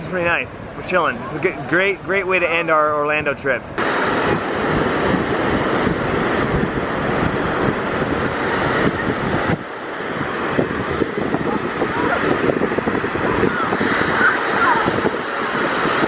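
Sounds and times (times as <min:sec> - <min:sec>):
ocean surf breaking: 0:00.0 - 0:16.0
wind buffeting microphone: 0:03.6 - 0:16.0.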